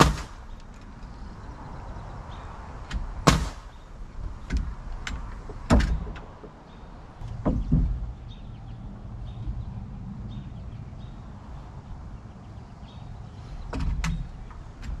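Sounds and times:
nails driven into wood: 0:00.0 - 0:00.4, 0:02.9 - 0:03.7
light clicks and knocks: 0:04.2 - 0:08.2, 0:13.7 - 0:15.0.

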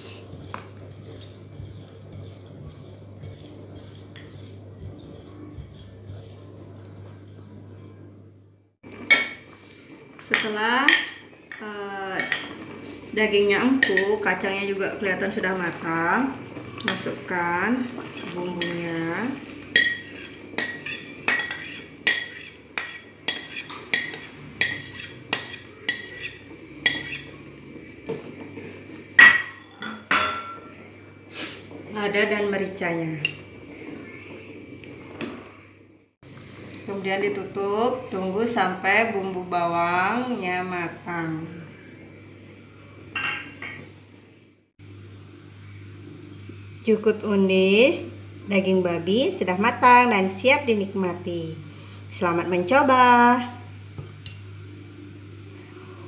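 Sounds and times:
hand mixing food in bowl: 0:00.0 - 0:07.7
steady low hum: 0:00.0 - 0:29.2.

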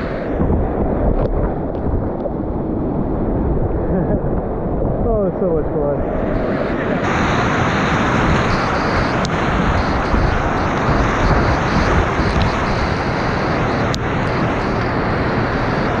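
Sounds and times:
whitewater rapids rushing: 0:06.7 - 0:16.0.

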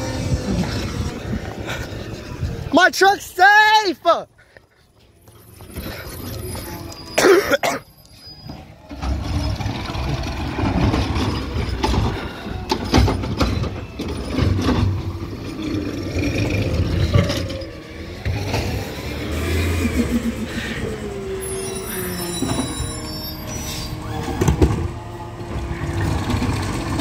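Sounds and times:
garbage truck engine running: 0:05.0 - 0:27.0
clanks and knocks: 0:09.0 - 0:15.8.

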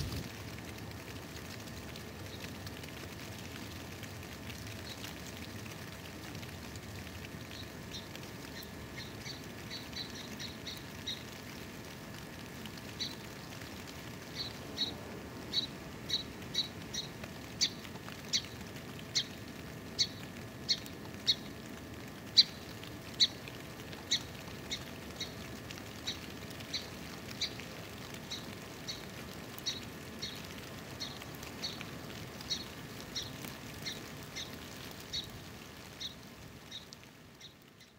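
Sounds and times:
small bird chirping: 0:07.5 - 0:11.3, 0:14.3 - 0:19.4, 0:22.3 - 0:23.4, 0:26.0 - 0:35.3, 0:36.0 - 0:37.9.

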